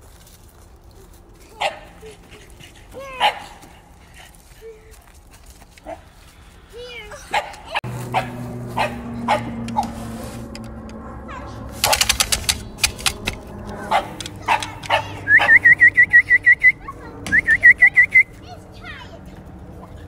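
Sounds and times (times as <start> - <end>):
dogs barking: 1.5 - 4.4, 7.1 - 10.2, 10.8 - 15.8.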